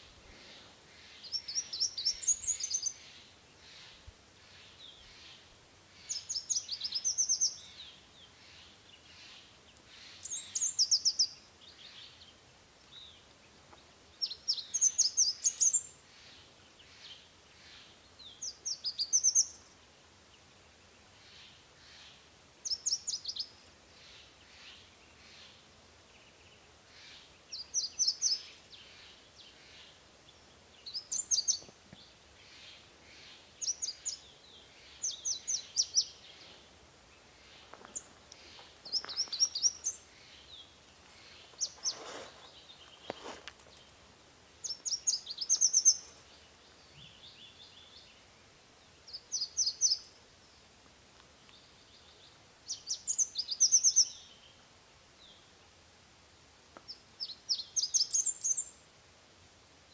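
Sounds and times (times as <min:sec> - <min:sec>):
brief rustling: 0:41.7 - 0:43.9.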